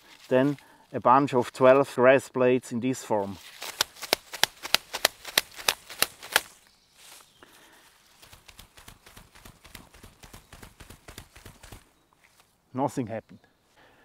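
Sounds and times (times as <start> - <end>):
grass rustling: 0.0 - 1.8, 3.1 - 12.6
grass rope creaking: 3.3 - 7.3
grass blades snapping and tearing: 3.4 - 6.6.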